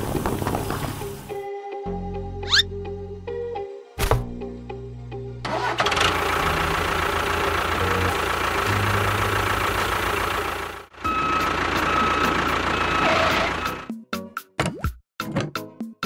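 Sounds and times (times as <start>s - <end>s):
engine running with low pulsing: 5.5s - 13.9s.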